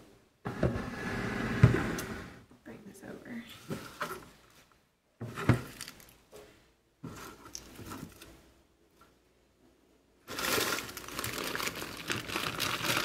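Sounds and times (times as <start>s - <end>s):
spinach leaves pattering and rustling: 10.3s - 13.0s.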